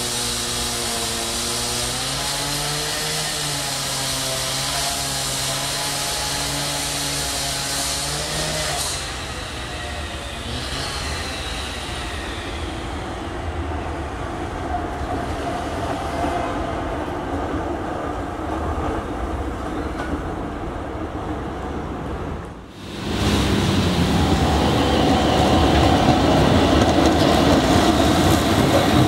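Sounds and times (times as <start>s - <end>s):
tram rumbling past on rails: 8.9s - 29.0s.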